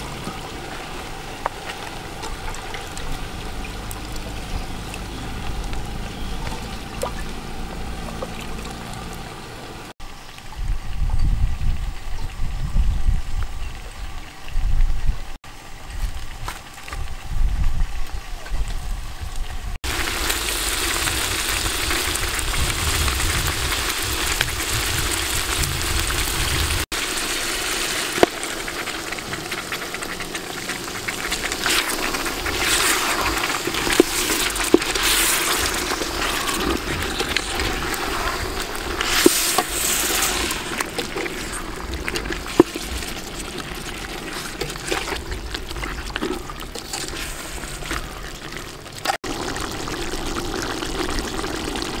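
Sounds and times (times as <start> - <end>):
food sizzling and bubbling in pot: 0.0 - 52.0.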